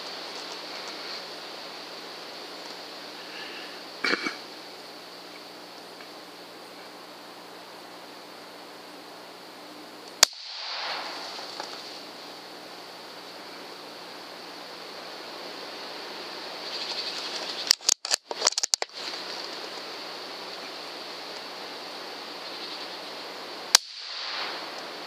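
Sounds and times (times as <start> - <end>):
rain hiss: 0.0 - 25.0
wind: 0.0 - 25.0
rifle shot crack: 10.2 - 12.0, 23.7 - 24.9.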